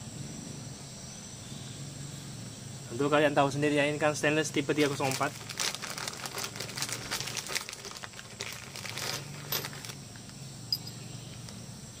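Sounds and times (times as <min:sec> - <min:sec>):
plastic bag crinkling: 0:04.5 - 0:10.0
metal parts clinking: 0:04.8 - 0:10.0, 0:10.7 - 0:11.6.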